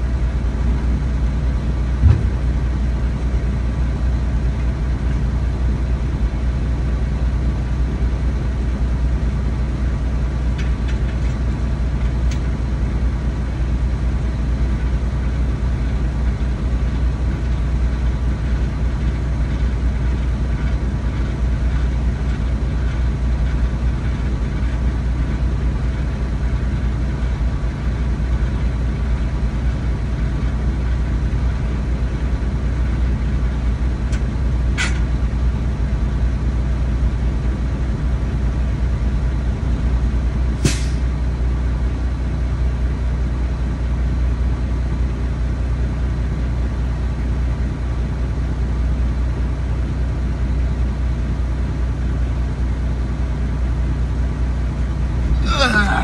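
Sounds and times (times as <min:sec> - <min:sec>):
truck diesel engine running: 0:00.0 - 0:56.0
short sharp hisses: 0:40.6 - 0:41.1.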